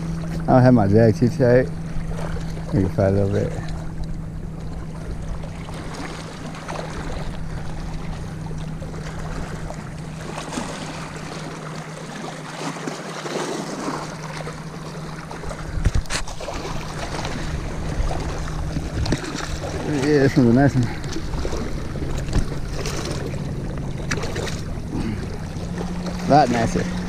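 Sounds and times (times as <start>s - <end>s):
steady low hum: 0.0s - 27.0s
water lapping against rocks: 0.0s - 27.0s
fish splashing at surface: 15.3s - 20.2s
wind on microphone: 15.4s - 22.8s.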